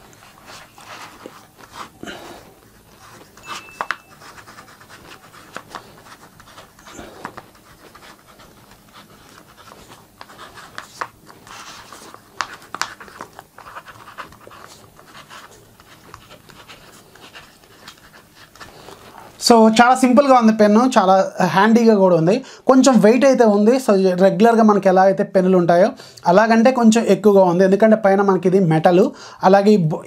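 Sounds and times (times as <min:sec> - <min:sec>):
pen scratching on paper: 0:00.0 - 0:19.4.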